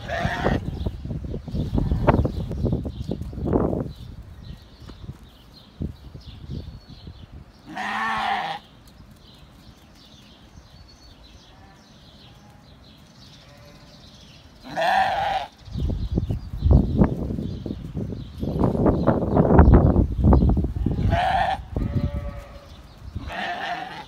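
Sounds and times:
lamb bleating: 0.0 - 0.7, 7.7 - 8.6, 13.4 - 14.0, 14.6 - 15.5, 20.8 - 24.0.

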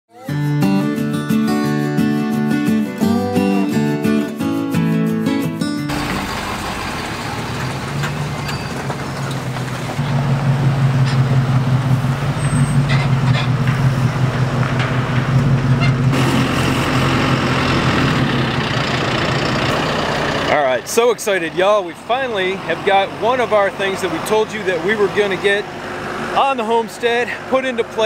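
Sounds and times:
deep heavy engine drone: 5.9 - 28.0.

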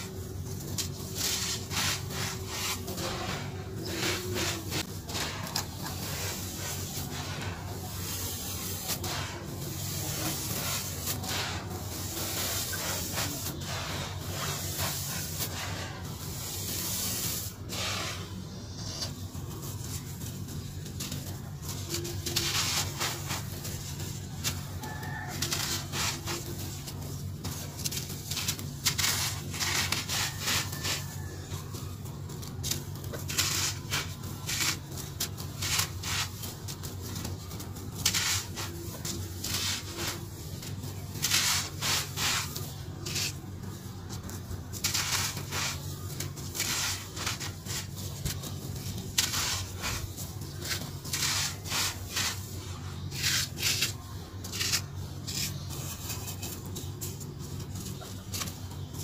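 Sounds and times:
hands crushing dry cement chunks: 44.8 - 52.4, 53.1 - 56.5.

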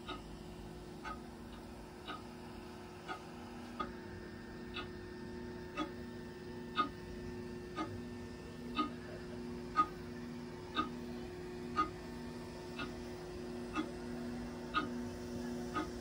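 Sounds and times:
steady ticking: 1.0 - 2.3, 4.7 - 4.9, 5.7 - 6.0, 6.7 - 7.0, 7.7 - 8.0, 8.6 - 16.0.

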